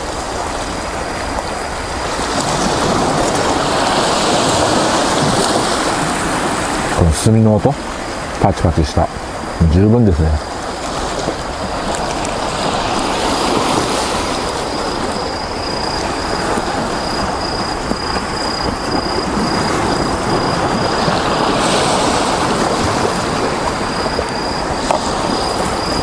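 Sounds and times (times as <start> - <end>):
waves washing onto pebbles: 0.0 - 7.0, 7.7 - 26.0
high-pitched insect trill: 8.9 - 22.6, 23.2 - 26.0.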